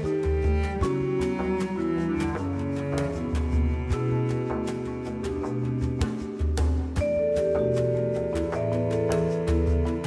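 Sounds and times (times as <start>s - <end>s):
instrumental music with steady beat: 0.0s - 10.0s.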